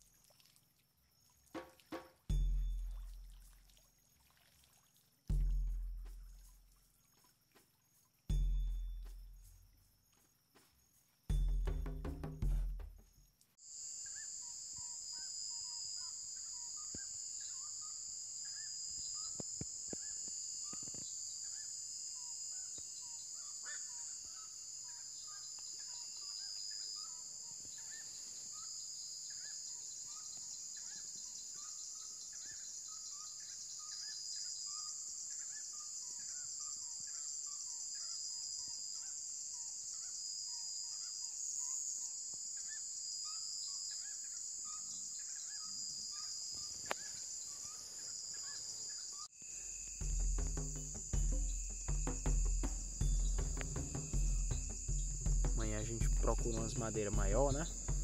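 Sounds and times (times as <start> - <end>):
insects chirping: 0.0 - 58.0
crickets shrilling: 12.8 - 58.0.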